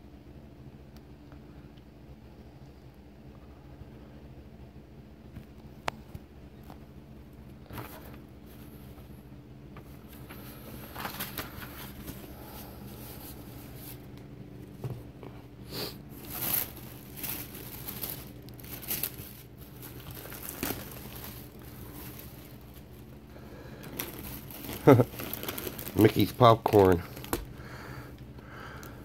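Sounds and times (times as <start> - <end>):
faint steady hum: 0.0 - 29.0
paper and plastic rustling: 7.6 - 9.1, 9.8 - 15.1, 16.1 - 27.6.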